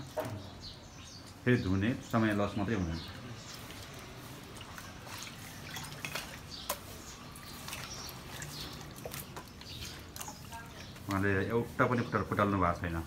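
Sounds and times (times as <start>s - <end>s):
water sloshing and dripping: 2.1s - 11.6s
small splashes: 3.1s - 11.1s.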